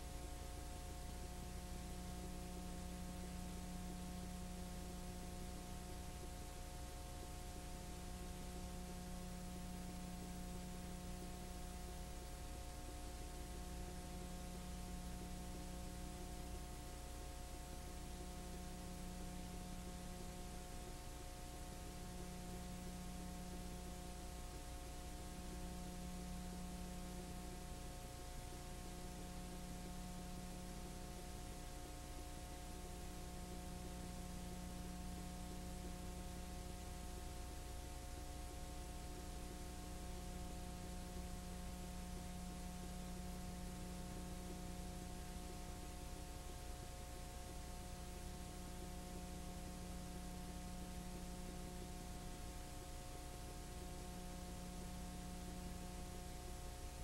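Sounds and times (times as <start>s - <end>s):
constant hiss: 0.0s - 57.0s.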